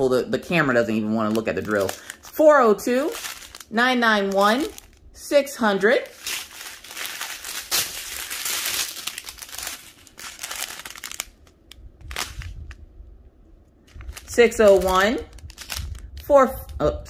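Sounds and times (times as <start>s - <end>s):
plastic bags crinkling: 0.0s - 5.2s, 5.8s - 12.8s, 13.8s - 16.3s.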